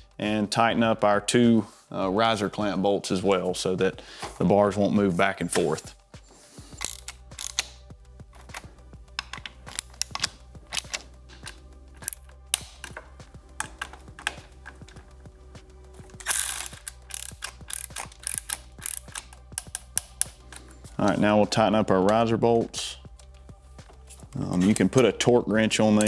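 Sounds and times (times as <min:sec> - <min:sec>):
ratchet wrench clicking: 0:06.8 - 0:07.8, 0:09.2 - 0:11.0, 0:12.0 - 0:12.9, 0:16.2 - 0:20.7.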